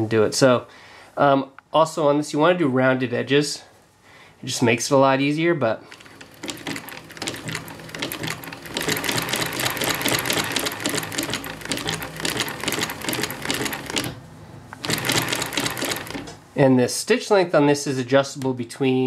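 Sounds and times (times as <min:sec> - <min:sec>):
sewing machine clattering: 0:05.9 - 0:14.2, 0:14.8 - 0:16.4.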